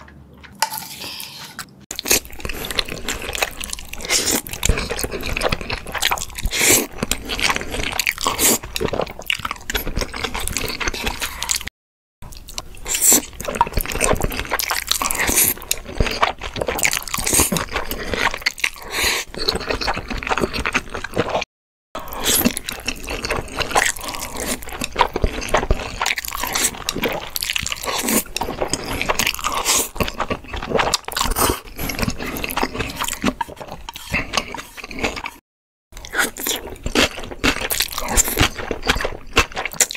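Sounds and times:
slurping noodles: 0.6s - 11.7s, 22.0s - 35.4s.

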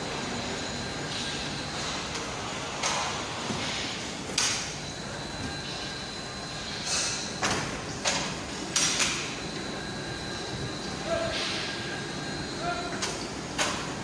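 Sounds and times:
steady shop noise: 0.0s - 14.0s
faint high whine: 9.2s - 13.4s.

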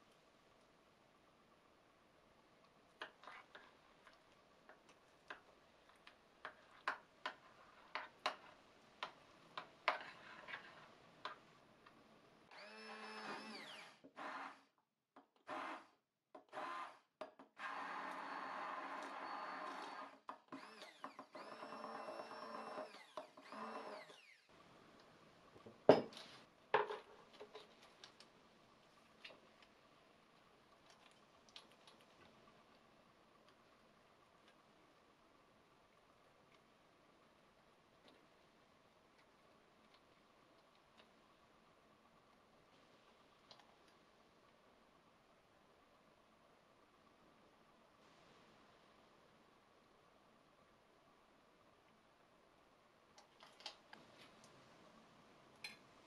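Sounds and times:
immersion blender whirring: 16.5s - 16.9s, 17.6s - 24.3s.

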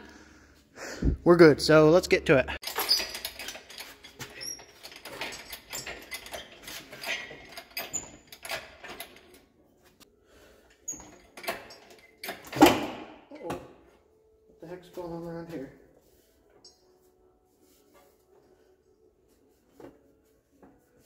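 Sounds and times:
hoist and chain clanking: 2.6s - 9.4s, 10.9s - 13.5s
hoist squeaks: 2.7s - 9.0s, 10.9s - 12.5s.

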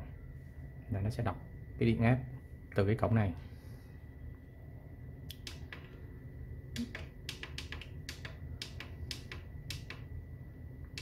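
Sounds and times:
push buttons clicking: 6.8s - 10.1s.

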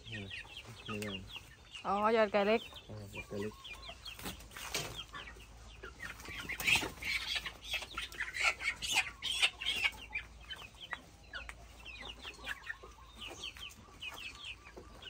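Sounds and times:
chicks peeping: 0.0s - 15.0s
scuffling and wing flapping: 4.0s - 5.2s, 5.9s - 11.0s.

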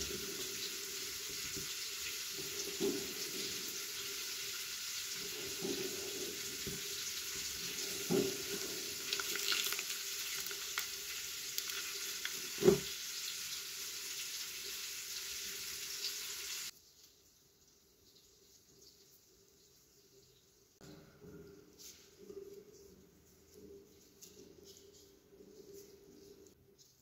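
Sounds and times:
steady hiss: 0.0s - 21.0s.

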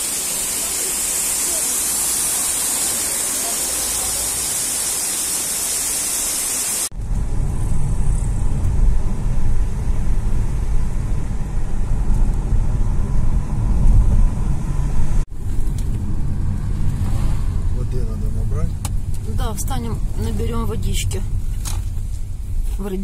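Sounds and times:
waterfall hissing: 0.0s - 6.9s
car interior rumble: 6.9s - 23.0s.

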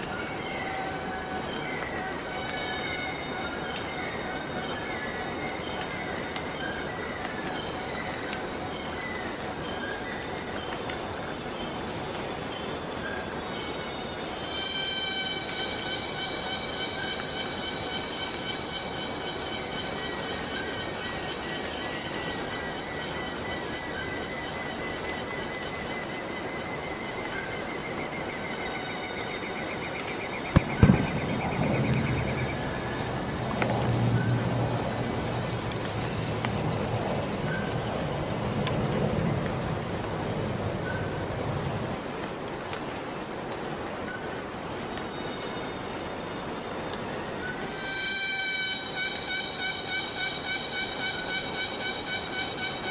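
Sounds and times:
insect chorus buzzing: 0.0s - 52.9s
low rumble: 30.6s - 42.0s.

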